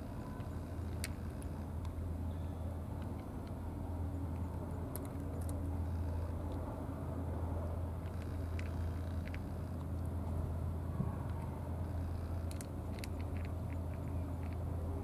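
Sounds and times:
low outdoor rumble: 0.0s - 15.0s
cat chewing food: 3.0s - 6.7s, 7.9s - 15.0s.

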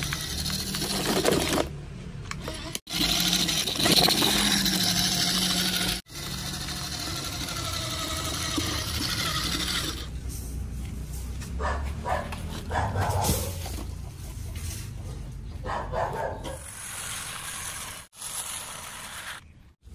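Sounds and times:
toy truck motor whirring: 0.0s - 1.7s, 2.3s - 10.5s, 16.4s - 19.9s.

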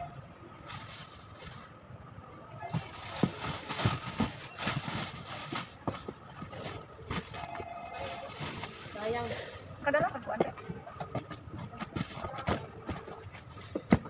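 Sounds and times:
plastic bags rustling and crinkling: 0.0s - 2.0s, 2.6s - 10.0s.

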